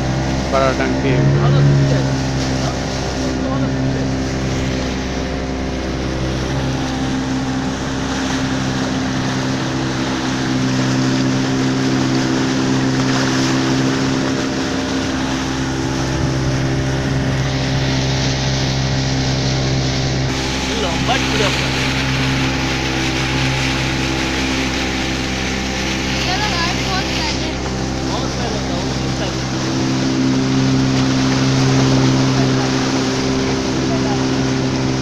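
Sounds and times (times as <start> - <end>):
boat engine running: 0.0 - 35.0
water rushing along hull: 0.0 - 35.0.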